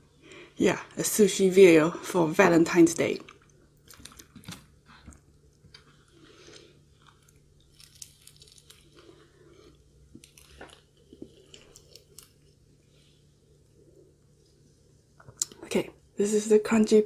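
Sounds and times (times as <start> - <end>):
fried chicken crust crackling: 5.8 - 12.6.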